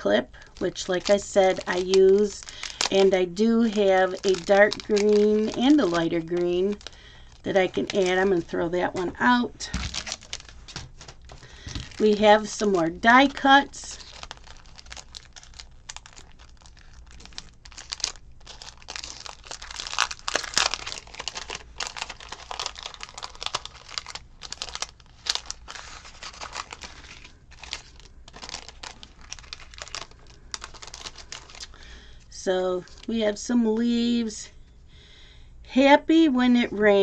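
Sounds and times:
cellophane crinkling: 0.0 - 33.3
paper being handled: 9.0 - 12.8, 13.9 - 31.8.

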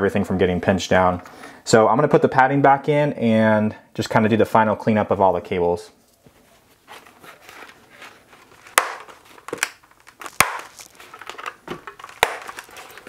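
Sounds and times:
fabric and foam rustling: 6.2 - 11.5.

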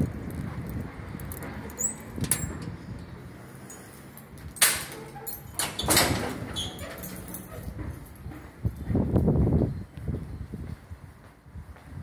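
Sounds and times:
metal door bang: 4.6 - 7.6.

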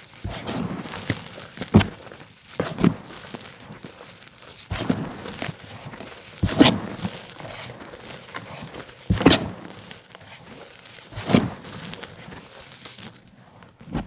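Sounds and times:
chalk powder crunching: 0.0 - 13.2.

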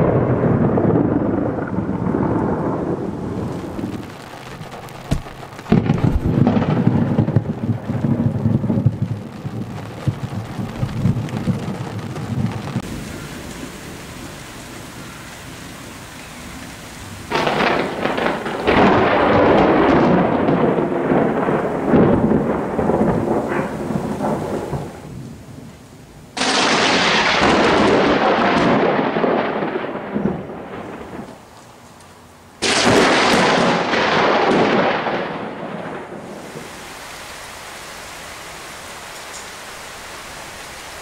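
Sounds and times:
thunder crack and rumble: 0.0 - 14.0, 17.3 - 25.7, 26.3 - 31.4, 32.6 - 36.4
steady hiss: 3.1 - 7.9, 8.8 - 18.6, 36.3 - 41.0.

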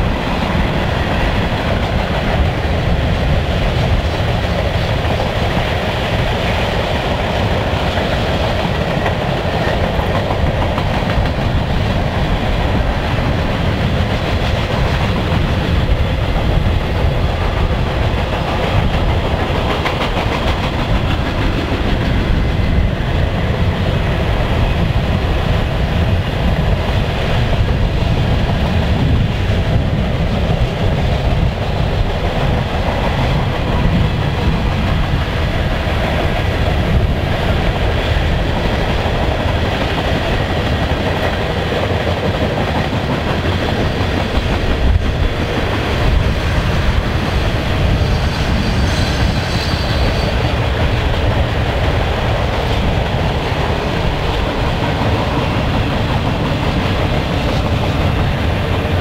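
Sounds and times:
freight train rolling past: 0.0 - 59.0
wheel squeal: 47.9 - 50.5.

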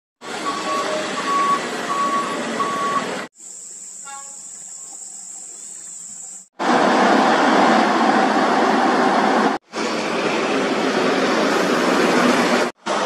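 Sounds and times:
heavy truck engine: 0.2 - 3.3, 6.6 - 13.0
reversing alarm beeping: 0.4 - 3.2
high-pitched insect drone: 3.4 - 6.5.

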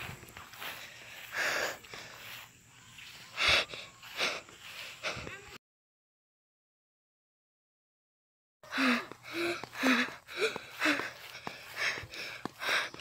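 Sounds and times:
person breathing hard: 0.0 - 5.6, 8.6 - 13.0.

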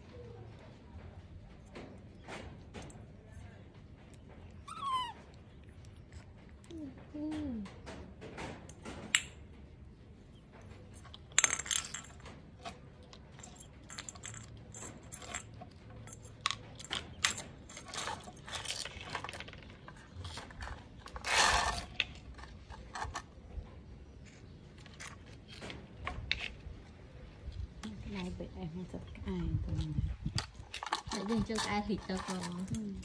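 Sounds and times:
plastic toys clattering on tiles: 10.8 - 23.5, 29.3 - 33.0
scrape on floor: 21.1 - 22.2.

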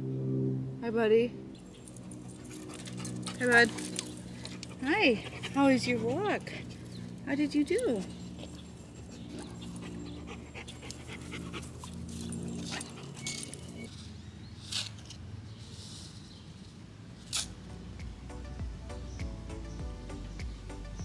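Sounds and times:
dog panting: 1.6 - 13.9.

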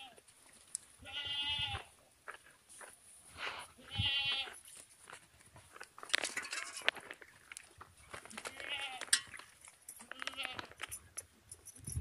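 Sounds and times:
goat bleating: 0.0 - 0.2, 1.0 - 1.9, 3.8 - 4.6, 8.4 - 9.1, 10.0 - 10.7
clicks and scuffs: 4.4 - 12.0.

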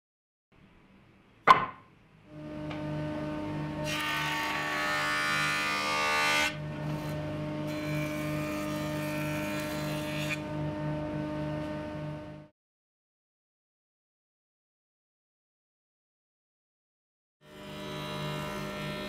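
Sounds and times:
sharp knock: 1.4 - 1.9.

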